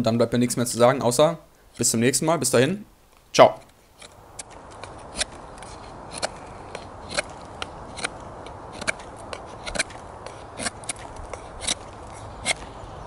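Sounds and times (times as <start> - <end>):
knife shaving bark off stick: 3.5 - 12.8.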